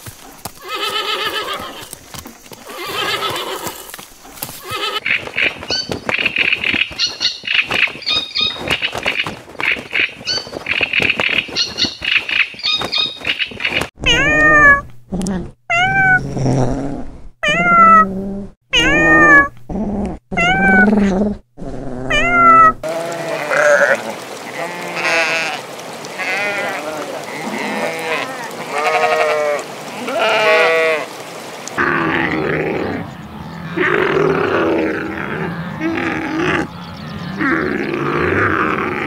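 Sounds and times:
gulls calling: 4.6 - 14.6, 22.2 - 31.8
kitten meowing loudly: 18.8 - 19.5
sheep bleating: 22.8 - 31.1.

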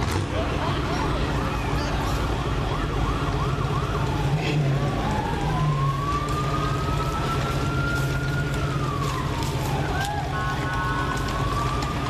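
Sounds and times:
emergency vehicle siren: 0.0 - 12.0
low engine hum: 0.0 - 12.0.

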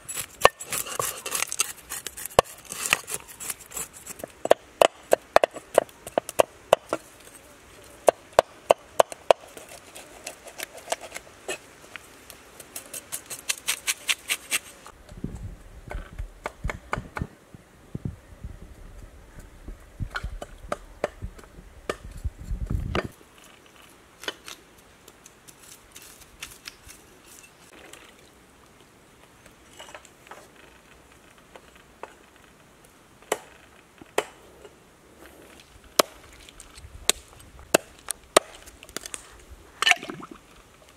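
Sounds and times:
knife scraping fish scales: 0.0 - 4.2.

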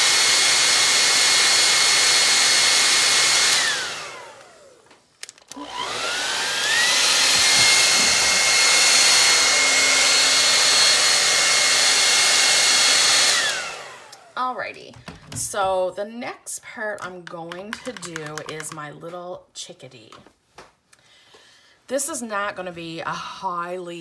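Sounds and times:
hair dryer whining: 0.0 - 15.7, 17.3 - 18.8.

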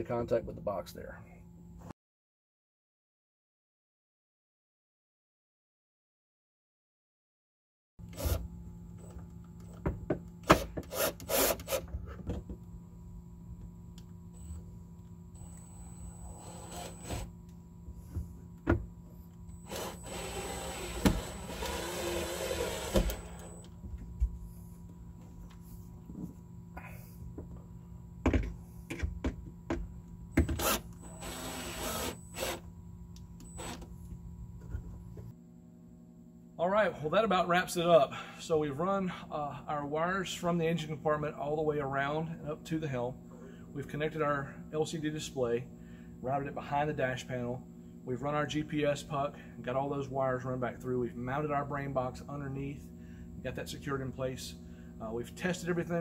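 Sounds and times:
cordless drill running: 8.0 - 9.8, 10.4 - 11.9, 15.3 - 17.4, 19.5 - 23.8, 30.4 - 32.7, 33.4 - 33.8
screw threads grinding: 19.6 - 23.6
cordless driver driving screws: 19.6 - 23.7.

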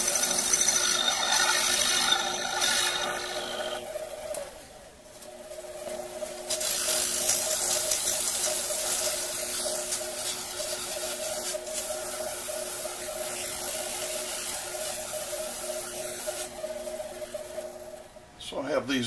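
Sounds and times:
metal lathe humming: 0.0 - 18.1
sandpaper hissing rasp: 6.5 - 17.9.

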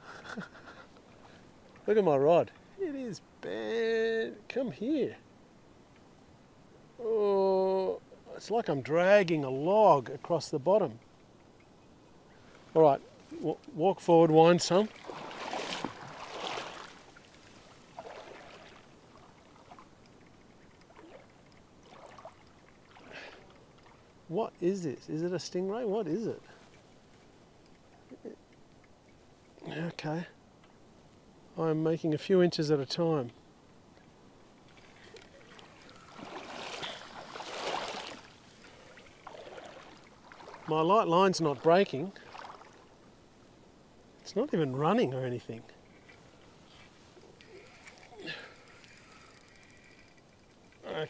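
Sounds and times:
water sloshing around legs: 12.5 - 24.2, 34.6 - 40.7, 41.5 - 43.0
splash of stepping in water: 14.8 - 18.9, 20.9 - 23.4, 35.5 - 40.7.

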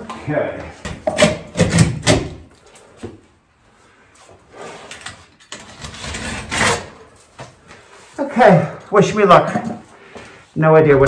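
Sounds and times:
rustling and shuffling: 7.0 - 8.4.

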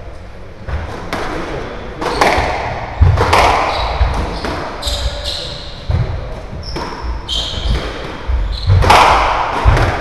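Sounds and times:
squash ball cracking off rackets: 1.0 - 4.8, 7.7 - 10.0
shoes squeaking on wooden floor: 3.7 - 5.9, 6.5 - 8.9.

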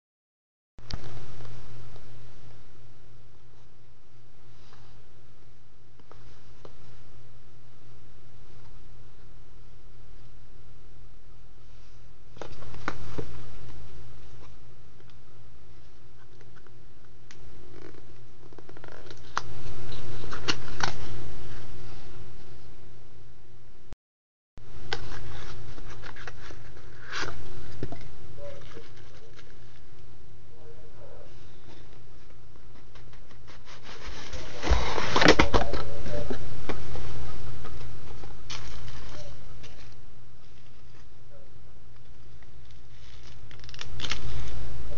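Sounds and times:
steady low hum: 0.8 - 24.0, 24.6 - 44.9
packaging rustling and crinkling: 42.6 - 44.6.

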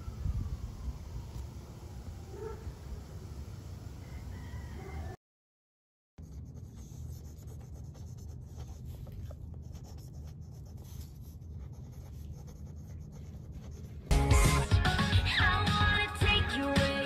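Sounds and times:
pen scratching on paper: 6.2 - 14.1.

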